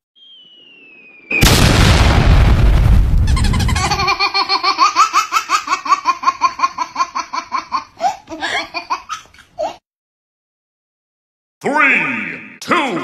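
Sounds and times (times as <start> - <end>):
high-pitched laughter: 3.2 - 9.8.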